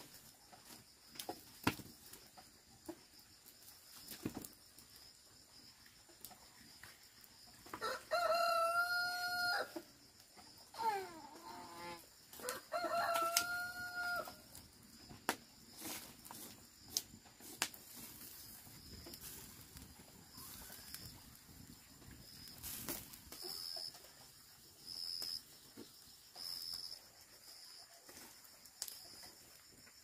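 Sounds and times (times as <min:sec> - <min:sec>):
rooster crowing: 0:07.8 - 0:09.8, 0:11.8 - 0:14.6.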